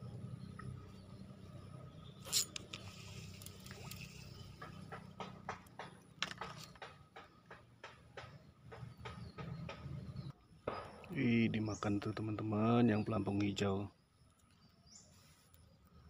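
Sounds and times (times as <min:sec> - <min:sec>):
fishing line rushing: 0:02.0 - 0:04.8.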